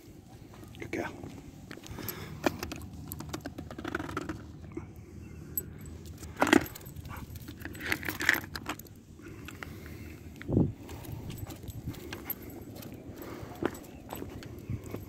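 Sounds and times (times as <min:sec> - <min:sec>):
metal tag jangling on collar: 0:05.5 - 0:09.5, 0:10.8 - 0:15.0.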